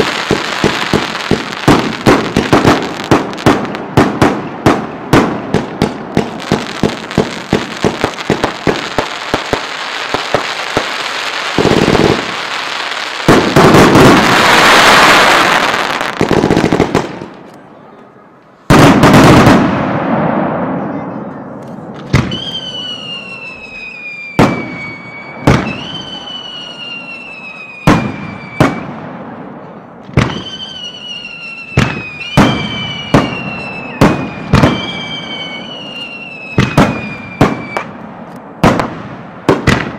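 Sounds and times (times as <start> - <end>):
fireworks crackling and bangs: 0.0 - 17.6, 18.6 - 39.9
firework falling whistle: 22.1 - 29.0, 30.2 - 37.9.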